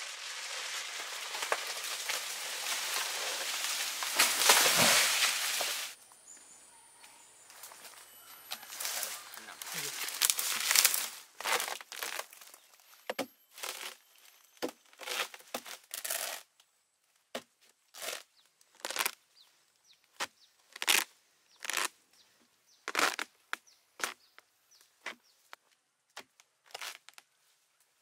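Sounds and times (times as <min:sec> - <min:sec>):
palm trunk tearing and cracking: 0:00.0 - 0:06.0, 0:08.5 - 0:14.0, 0:14.6 - 0:16.5, 0:17.4 - 0:19.2, 0:20.1 - 0:22.0, 0:22.9 - 0:24.2, 0:26.2 - 0:27.3.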